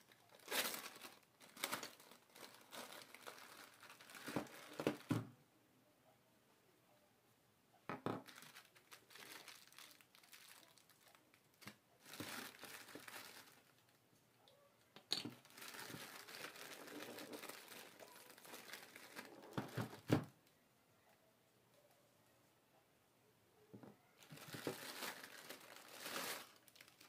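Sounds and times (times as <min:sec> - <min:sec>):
plastic bag crinkling: 0:00.0 - 0:05.2, 0:08.1 - 0:14.0, 0:15.1 - 0:20.3, 0:24.2 - 0:27.0.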